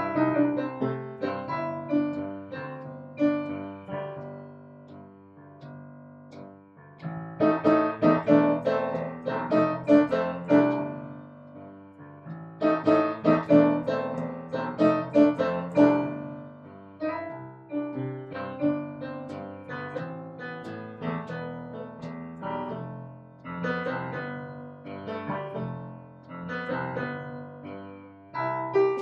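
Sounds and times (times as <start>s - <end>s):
solo piano music: 0.0s - 29.0s.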